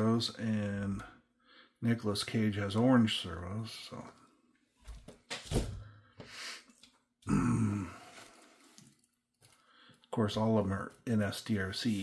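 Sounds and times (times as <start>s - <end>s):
low grunt-like vocal sound: 7.2s - 8.4s.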